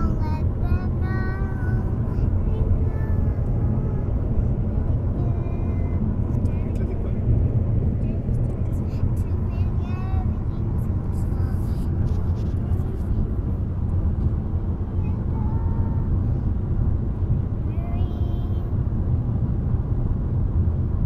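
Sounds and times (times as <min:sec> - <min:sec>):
child singing: 0:00.0 - 0:04.1, 0:05.0 - 0:06.6, 0:08.9 - 0:11.9, 0:15.0 - 0:16.1, 0:17.7 - 0:18.7
car cabin road and engine rumble: 0:00.0 - 0:21.0.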